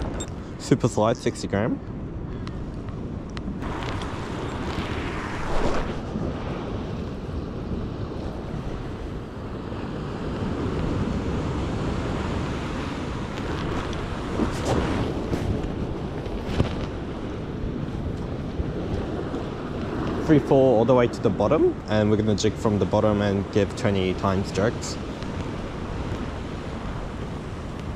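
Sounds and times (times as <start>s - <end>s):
wind buffeting microphone: 0.0s - 27.9s.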